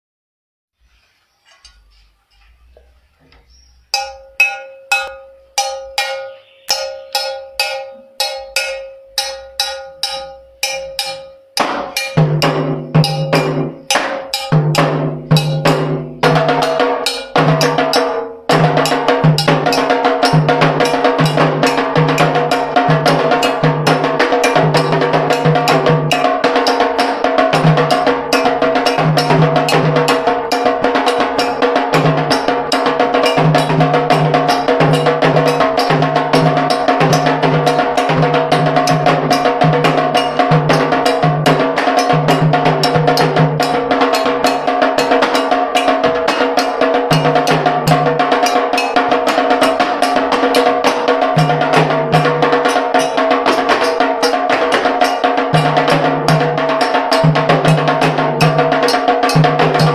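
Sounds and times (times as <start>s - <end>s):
hand drums: 2.8s - 59.9s
metal bell struck: 3.9s - 15.9s.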